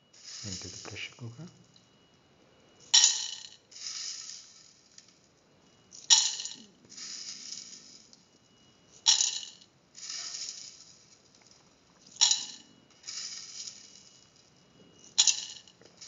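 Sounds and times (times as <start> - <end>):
beans pattering: 0.1 - 1.8, 2.8 - 16.0
beans clattering into steel pot: 0.2 - 1.1, 9.0 - 11.0, 12.1 - 14.1, 15.2 - 16.0.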